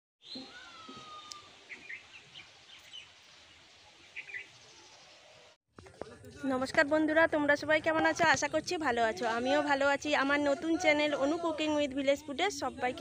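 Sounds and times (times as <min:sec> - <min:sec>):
falling bird whistle: 0:00.2 - 0:02.0
birds chirping: 0:00.2 - 0:05.6.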